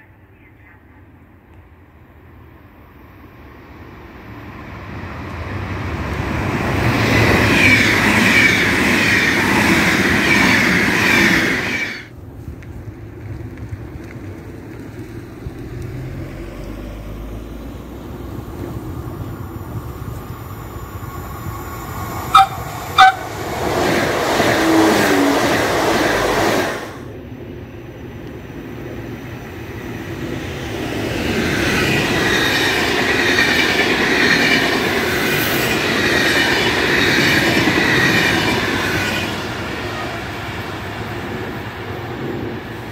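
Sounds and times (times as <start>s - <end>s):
train passing at speed: 0.0s - 42.9s
electric train passing: 1.0s - 42.9s
train horn blasts: 22.3s - 23.4s, 24.5s - 25.7s.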